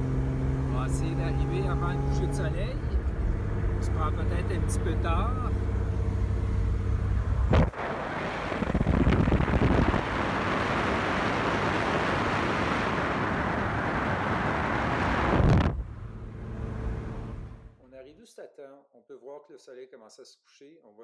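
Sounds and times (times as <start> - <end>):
car engine running: 0.0 - 17.8
wind buffeting microphone: 7.4 - 15.9.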